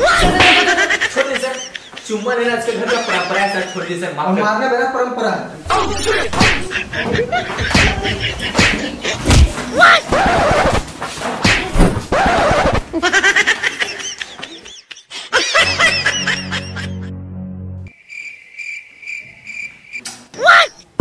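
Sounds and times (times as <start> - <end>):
laughter sound effect: 0.2 - 4.0, 5.7 - 9.3, 12.1 - 17.1
comedy music: 12.1 - 17.9
cricket chirp effect: 17.9 - 20.1.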